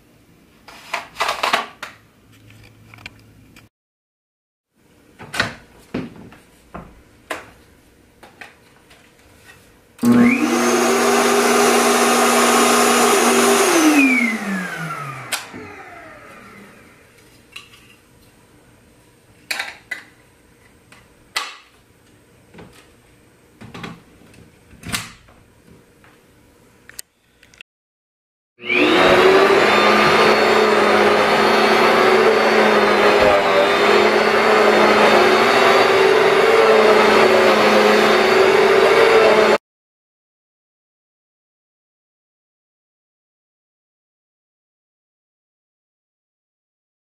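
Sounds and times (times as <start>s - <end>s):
vacuum cleaner motor: 10.0s - 17.2s, 28.6s - 39.6s.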